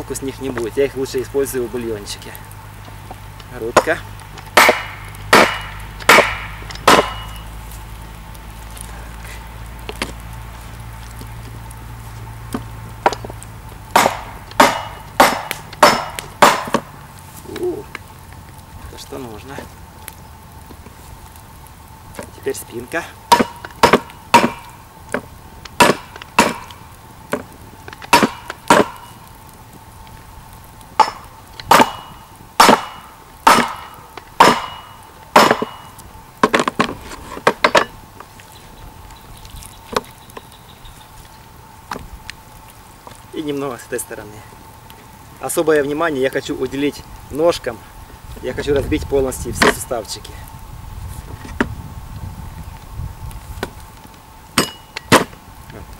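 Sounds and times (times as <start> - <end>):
hatchet striking wooden board: 4.5 - 7.4, 14.0 - 16.9, 23.3 - 24.7, 25.8 - 26.7, 28.0 - 29.0, 31.0 - 35.8.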